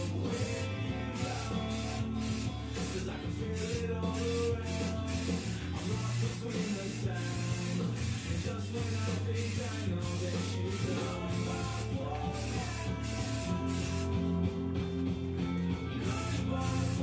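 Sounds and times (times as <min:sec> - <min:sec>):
spray can hissing: 0:00.0 - 0:14.2, 0:16.0 - 0:17.0
background music: 0:00.0 - 0:17.0.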